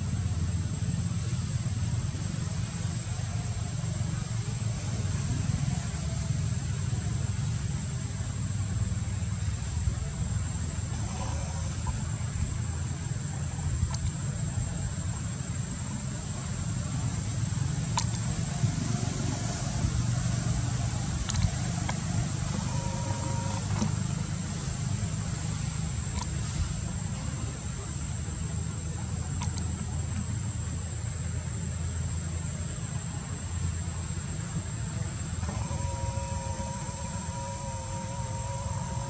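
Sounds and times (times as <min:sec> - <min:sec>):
high-pitched insect drone: 0:00.0 - 0:39.0
faint clicks: 0:17.8 - 0:18.6.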